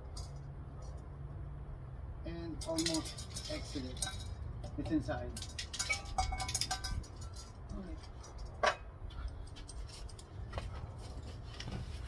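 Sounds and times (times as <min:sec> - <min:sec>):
tin can clinking: 0:02.6 - 0:08.8.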